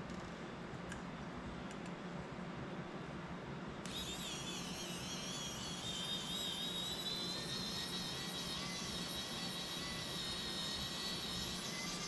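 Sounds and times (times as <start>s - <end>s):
drone electronic whine: 3.9s - 12.0s.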